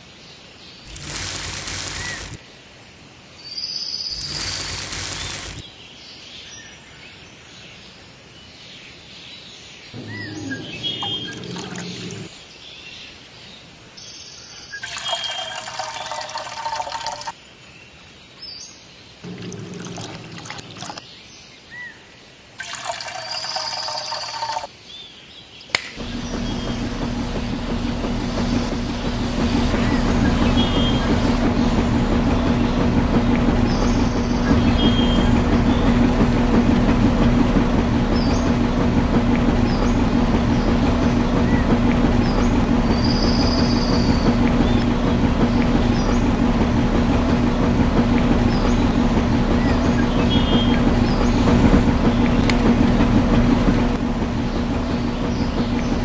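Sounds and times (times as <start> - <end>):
small electric motor humming: 0.9 - 2.4, 4.1 - 5.6, 10.0 - 12.3, 25.9 - 46.9
water pouring and trickling: 0.9 - 2.4, 4.1 - 5.6, 10.0 - 12.3, 14.8 - 17.4, 19.2 - 21.0, 22.6 - 24.7, 26.0 - 41.2.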